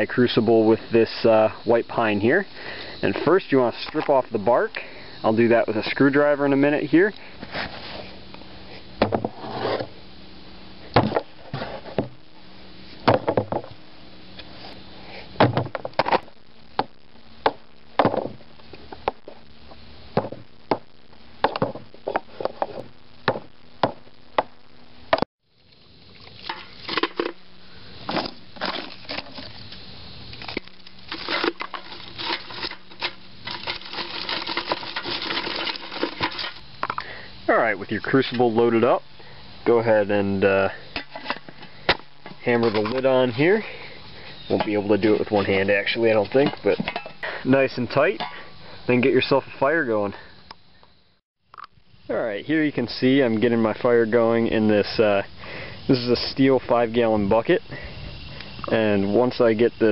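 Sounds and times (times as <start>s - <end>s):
wooden sticks clattering in metal can: 26.4s - 27.4s, 30.4s - 36.6s.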